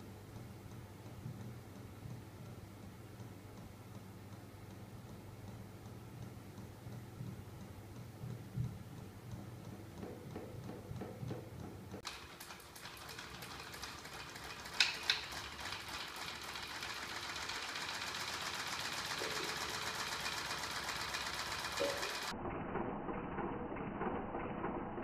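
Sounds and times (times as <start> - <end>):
crank engine mechanical clatter: 9.6 - 22.3.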